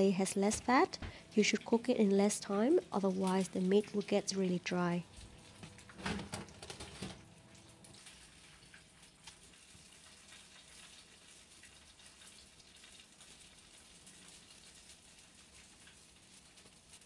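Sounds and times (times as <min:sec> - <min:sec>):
pork fat sizzling: 0:05.2 - 0:17.0.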